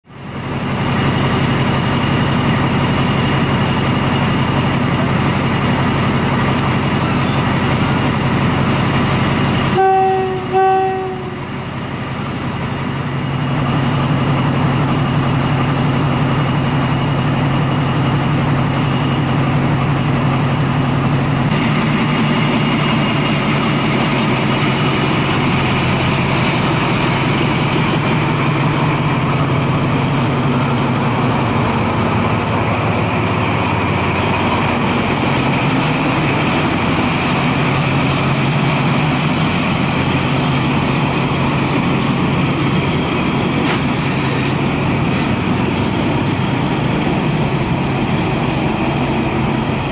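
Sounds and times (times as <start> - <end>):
diesel locomotive engine running: 0.0 - 49.9
locomotive horn toots: 9.7 - 11.5.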